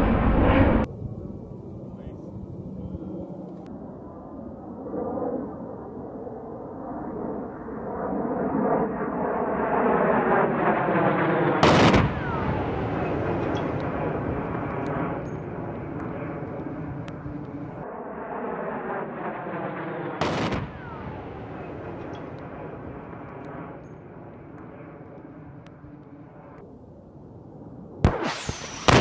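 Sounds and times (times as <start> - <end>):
loud explosion blast: 0.0 - 0.9, 11.6 - 15.2, 20.2 - 23.2, 28.0 - 29.0
falling whine: 0.0 - 4.7, 8.8 - 29.0
jet aircraft noise: 0.0 - 29.0.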